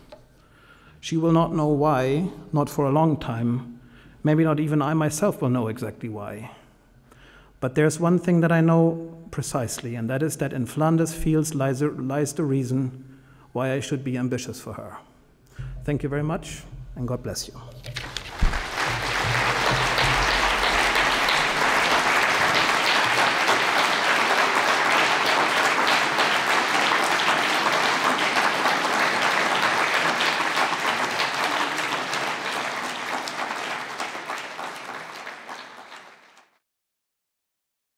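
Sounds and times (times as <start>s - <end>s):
audience applauding: 17.8s - 36.6s.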